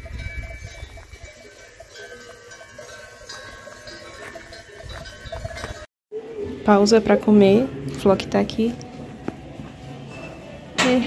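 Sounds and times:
cowbells ringing: 0:00.0 - 0:05.9.

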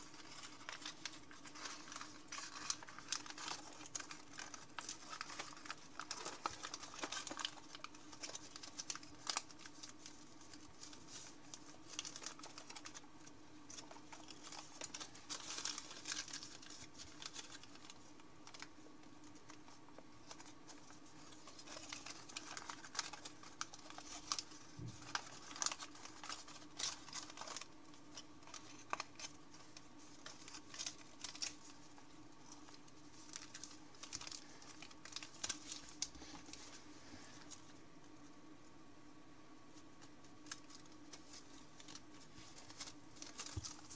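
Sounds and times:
sharp paper clicks: 0:00.0 - 0:31.8
paper rustling and crinkling: 0:00.0 - 0:38.2, 0:39.7 - 0:43.9
faint steady hum: 0:00.0 - 0:43.9.

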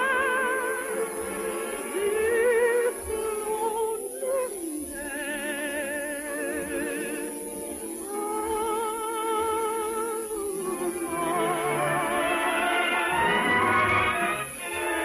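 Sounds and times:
orchestral music on radio: 0:00.0 - 0:04.1, 0:10.4 - 0:15.0.

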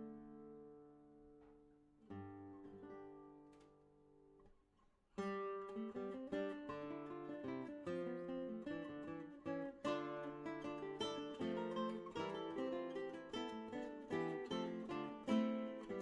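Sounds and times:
plucked string instrument music: 0:05.2 - 0:16.0.

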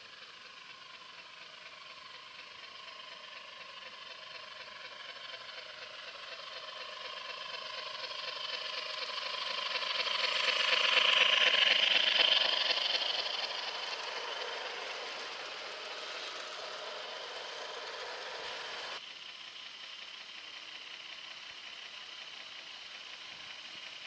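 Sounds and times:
model train wheels clattering: 0:00.0 - 0:19.0, 0:20.4 - 0:24.0
steady whine: 0:00.0 - 0:19.0.

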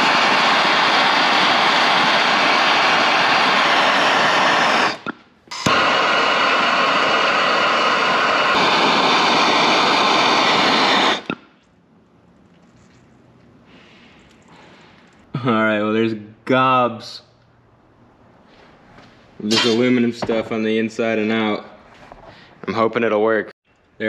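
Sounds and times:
gas torch hissing: 0:00.0 - 0:11.6, 0:19.4 - 0:21.6
torch igniter click: 0:01.3 - 0:11.5.

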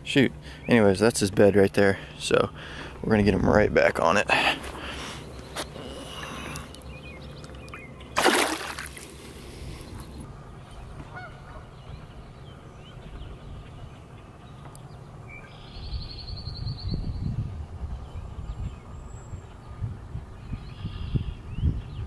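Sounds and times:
fish splashing into water: 0:08.2 - 0:09.4.

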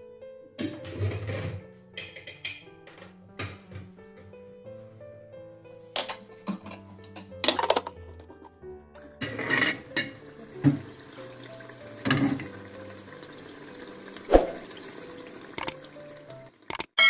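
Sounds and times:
background music: 0:00.0 - 0:16.9
fish simmering in sauce bubbling: 0:10.1 - 0:16.6.

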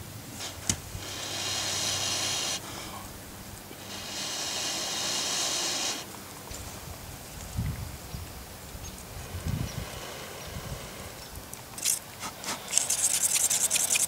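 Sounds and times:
breath blowing on glowing coal: 0:00.4 - 0:03.0, 0:03.7 - 0:06.1, 0:09.1 - 0:11.2.

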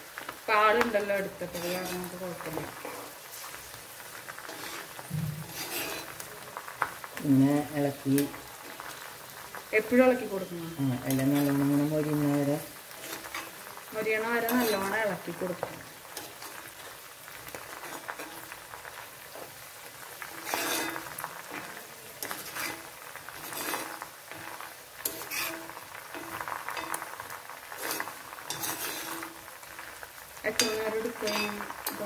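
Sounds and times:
leaves sizzling in hot oil: 0:00.0 - 0:32.0
spatula scraping pan: 0:01.4 - 0:03.6, 0:04.3 - 0:06.3, 0:12.9 - 0:19.6, 0:20.2 - 0:29.9, 0:30.5 - 0:32.0.

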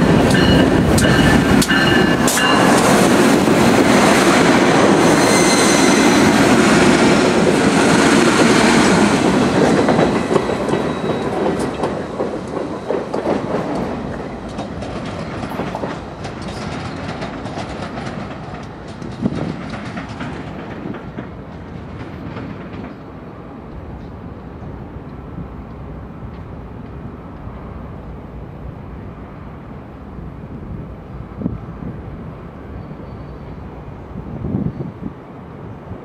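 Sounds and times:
train wheels clicking over rail joints: 0:00.0 - 0:05.2, 0:06.2 - 0:23.2
heavy train rumble: 0:00.0 - 0:36.0.

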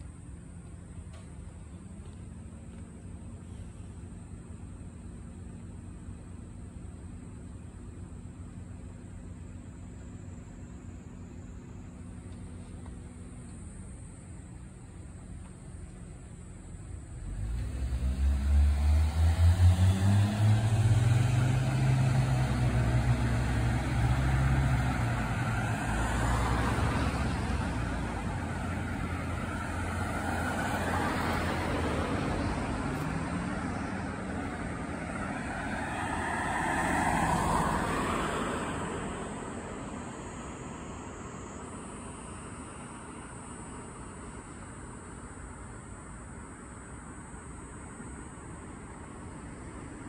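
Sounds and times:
vehicle engine accelerating past: 0:17.1 - 0:43.3.

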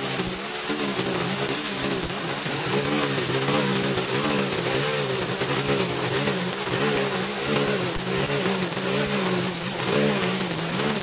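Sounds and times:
small gas engine running: 0:00.0 - 0:11.0.

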